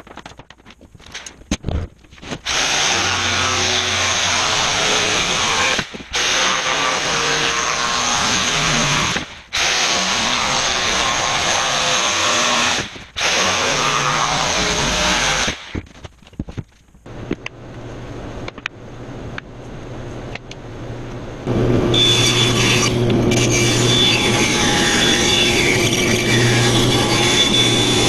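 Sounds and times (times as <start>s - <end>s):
jigsaw cutting plywood: 2.4s - 15.6s.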